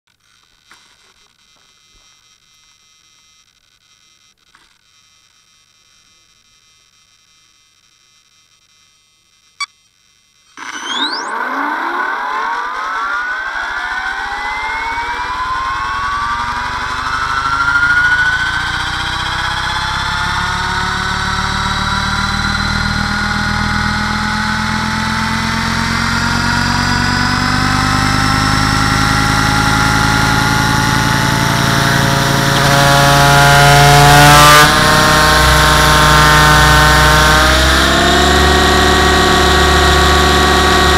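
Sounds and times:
motor and gear whine rising: 0:10.5 - 0:40.9.

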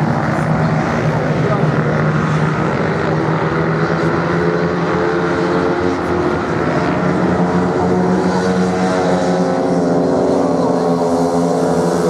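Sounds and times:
racing motorcycle engines droning: 0:00.0 - 0:12.0.

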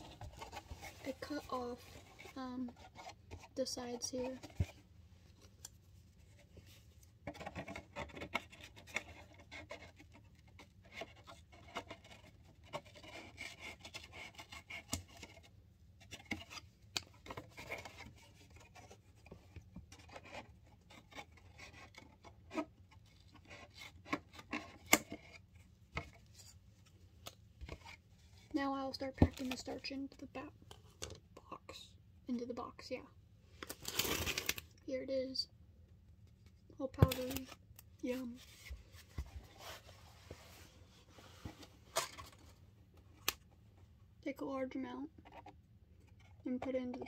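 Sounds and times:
cardboard scraping and crackling: 0:00.0 - 0:05.4, 0:33.7 - 0:34.7.

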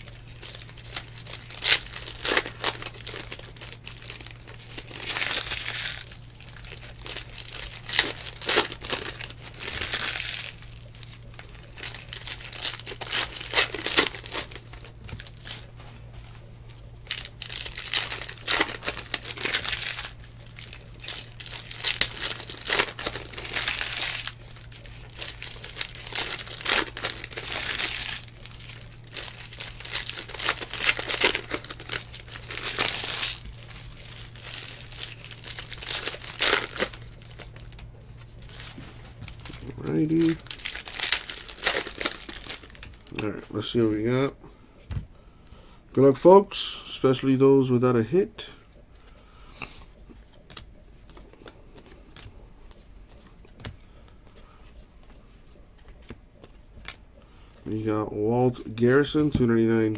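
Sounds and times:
foil wrappers crinkling and tearing: 0:00.0 - 0:43.8
steady low hum: 0:00.0 - 0:59.9.

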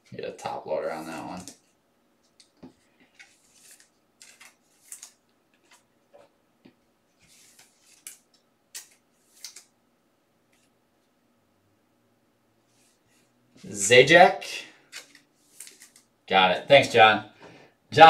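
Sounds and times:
cards swishing and ticking: 0:02.3 - 0:05.8, 0:07.2 - 0:09.7, 0:14.8 - 0:16.1.

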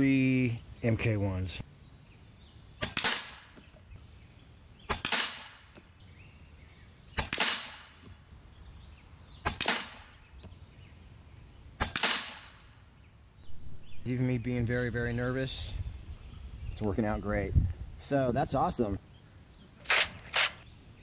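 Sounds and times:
air rifle shots: 0:02.8 - 0:03.6, 0:04.9 - 0:05.8, 0:07.2 - 0:08.0, 0:09.4 - 0:10.2, 0:11.8 - 0:12.7.

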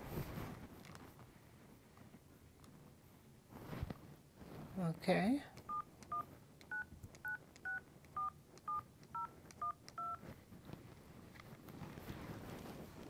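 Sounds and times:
touch-tone keypad beeps: 0:05.7 - 0:10.2.

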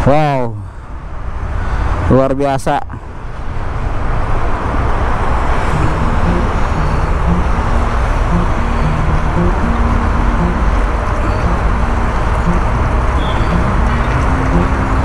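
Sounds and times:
heavy road traffic rumble: 0:00.0 - 0:15.0
faint short musical notes: 0:05.6 - 0:15.0.

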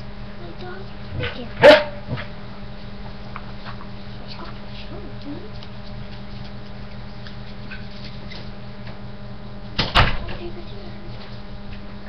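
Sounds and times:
steady low hum: 0:00.0 - 0:12.0
door shutting with bang: 0:09.8 - 0:10.5.

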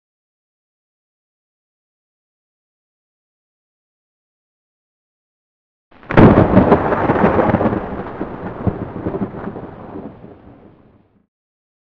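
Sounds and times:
thunderclap with rumble: 0:06.0 - 0:11.2.

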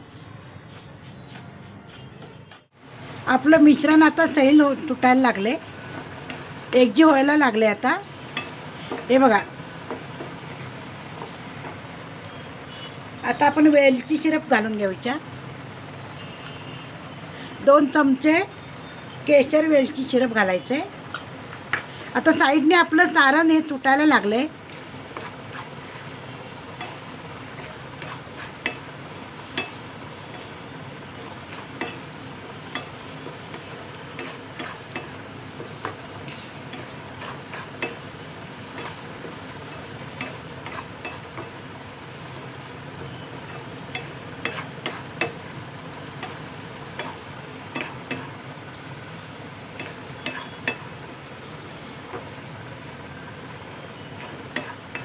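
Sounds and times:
spatula scraping a pan: 0:00.0 - 0:02.7, 0:24.7 - 0:32.1, 0:32.7 - 0:35.7, 0:36.3 - 0:41.3, 0:43.5 - 0:45.4.

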